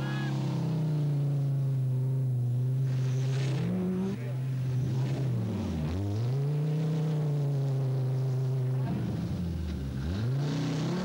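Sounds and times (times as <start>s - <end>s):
car engine revving hard: 9.9s - 11.0s.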